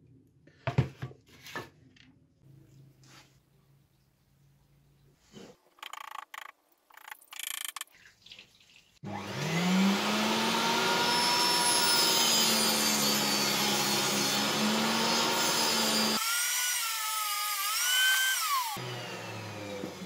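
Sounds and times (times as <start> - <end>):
table saw cutting wood: 9.0 - 20.0.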